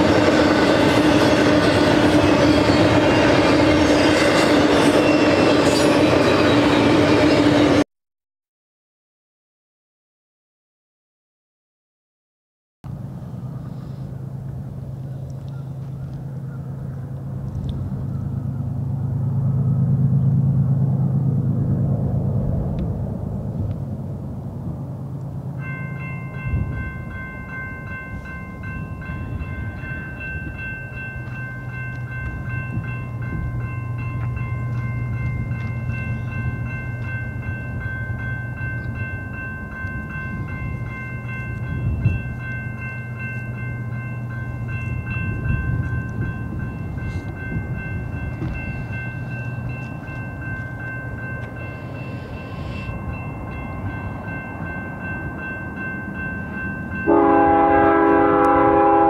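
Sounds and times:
diesel train rumble: 0.0s - 7.8s, 12.9s - 59.0s
railroad crossing bell ringing: 0.0s - 7.8s, 25.5s - 59.0s.

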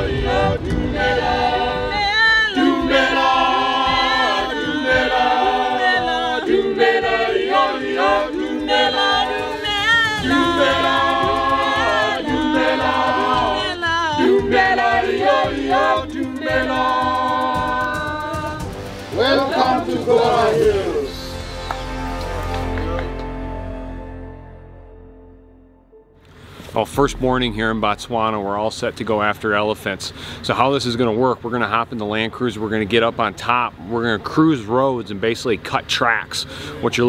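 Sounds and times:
group of voices singing in harmony: 0.0s - 23.5s.

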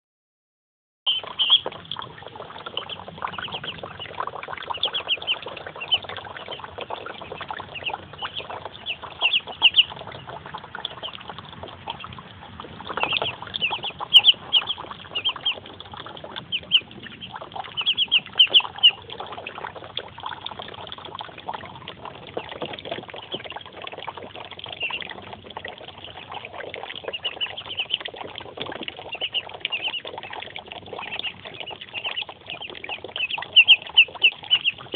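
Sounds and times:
ducklings peeping: 1.1s - 34.9s
small water splashes: 1.1s - 34.9s.

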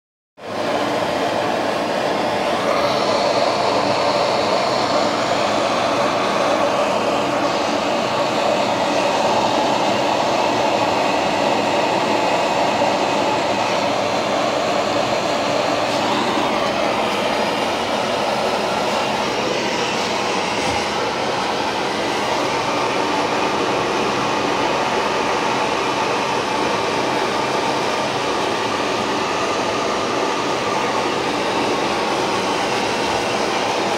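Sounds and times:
extractor fan rushing: 0.4s - 33.9s.

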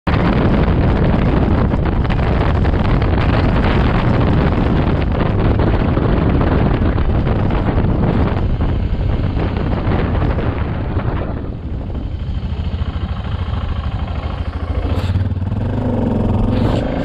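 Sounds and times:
motorcycle engine running: 0.1s - 17.0s
wind buffeting microphone: 0.1s - 17.0s.

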